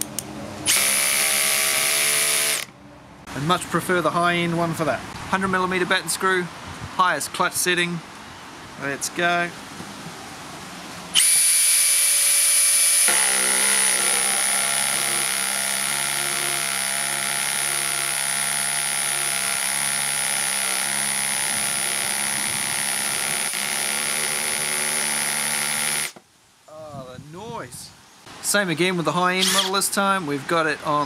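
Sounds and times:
cordless hammer drill whining: 0.7s - 2.7s, 11.2s - 26.2s.

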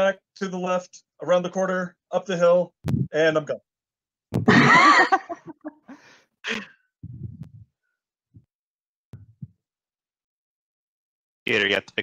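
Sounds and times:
person laughing: 4.4s - 7.4s.

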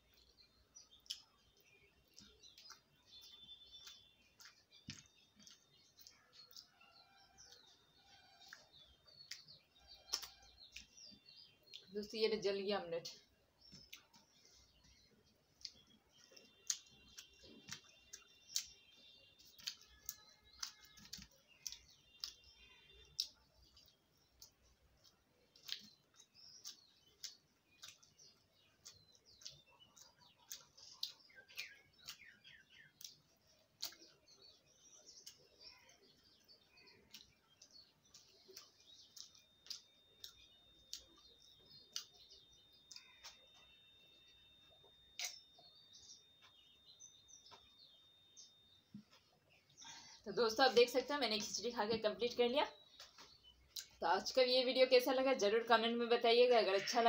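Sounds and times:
chewing: 0.0s - 11.9s, 13.7s - 18.8s, 19.4s - 43.7s, 53.0s - 54.0s.

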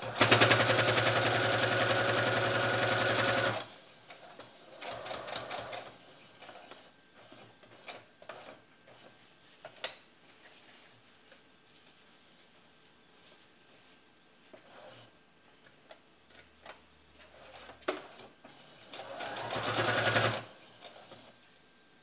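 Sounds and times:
sewing machine stitching: 0.0s - 3.7s, 4.7s - 5.9s, 17.3s - 21.2s.

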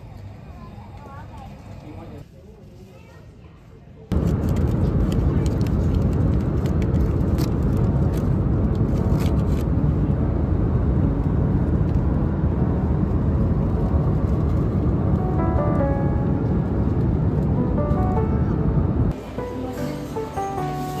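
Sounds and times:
airliner cabin engine rumble: 4.1s - 20.1s.

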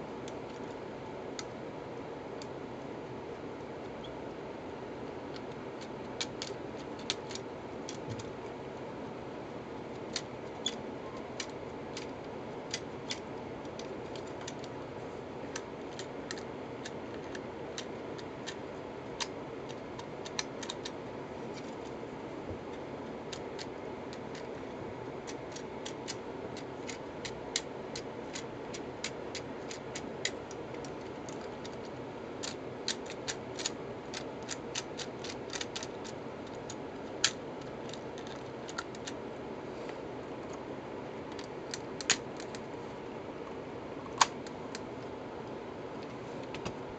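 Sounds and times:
steady background noise: 0.0s - 46.9s.

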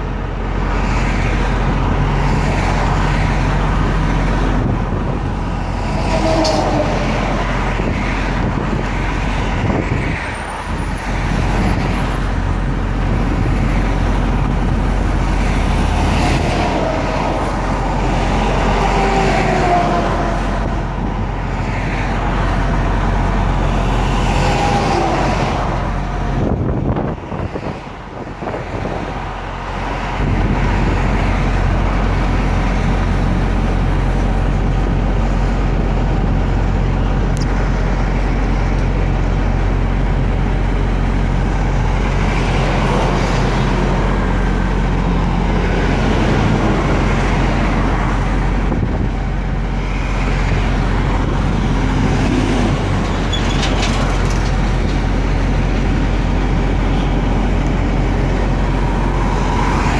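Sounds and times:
cars and trucks passing: 0.0s - 59.9s.

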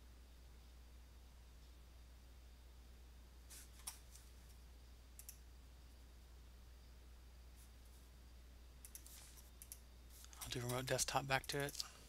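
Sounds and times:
low steady hum: 0.0s - 12.0s
computer mouse clicks: 5.2s - 5.4s, 8.8s - 11.9s.

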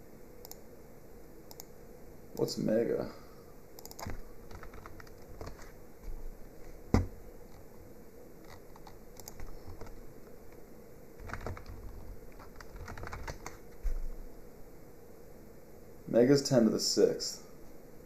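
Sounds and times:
typing on computer keyboard: 3.8s - 5.7s, 8.4s - 10.0s, 11.2s - 13.6s.

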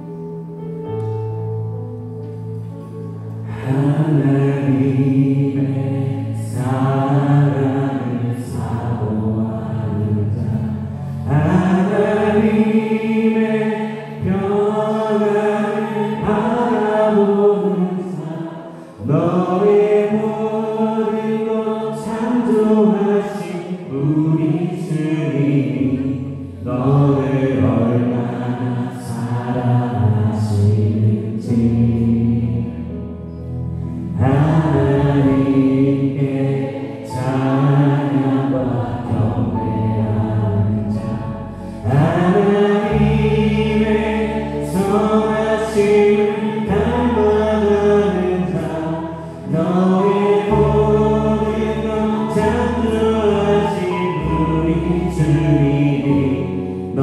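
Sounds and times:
electric bass low notes: 0.0s - 13.0s, 37.2s - 57.0s
keyboard: 0.0s - 57.0s
group of voices singing: 3.4s - 33.0s, 33.8s - 57.0s.

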